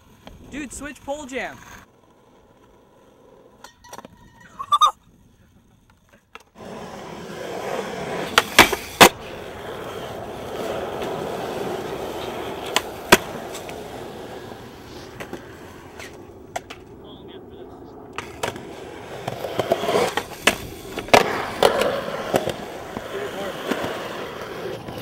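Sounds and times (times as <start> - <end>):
skateboard wheels rolling on concrete: 0.0 - 25.0
skateboard clacks: 5.6 - 17.0, 18.0 - 25.0.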